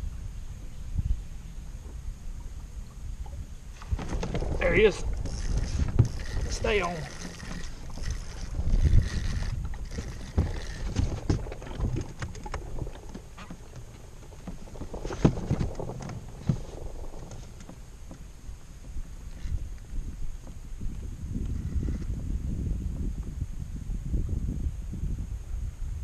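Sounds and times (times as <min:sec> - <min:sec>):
low wind rumble on microphone: 0:00.0 - 0:26.0
fishing reel cranking: 0:04.2 - 0:12.6.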